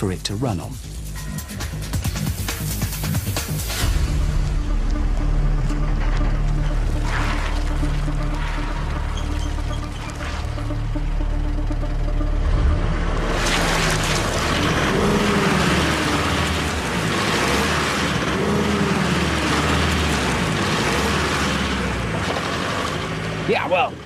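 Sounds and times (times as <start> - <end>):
truck engine revving: 1.7 - 24.0.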